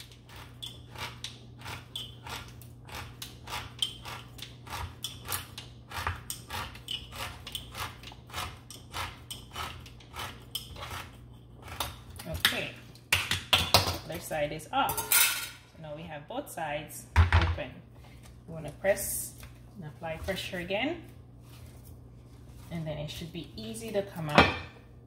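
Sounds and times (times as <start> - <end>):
manual can opener clicking and scraping: 0.0 - 12.7.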